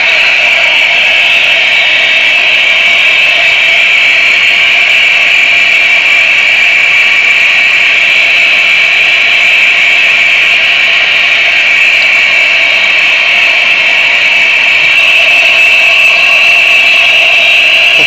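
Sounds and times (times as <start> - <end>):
high-pitched buzzing drone: 14.6 - 18.0.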